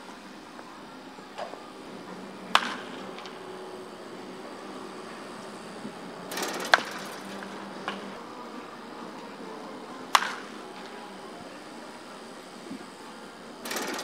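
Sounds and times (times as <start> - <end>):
open-air background: 0.0 - 14.0
bat striking baseball: 2.5 - 3.4, 6.3 - 7.2, 10.1 - 10.6.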